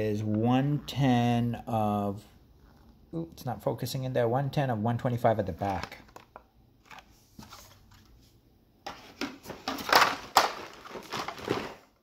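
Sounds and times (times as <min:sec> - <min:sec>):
plastic packaging crinkling: 0:09.5 - 0:12.0.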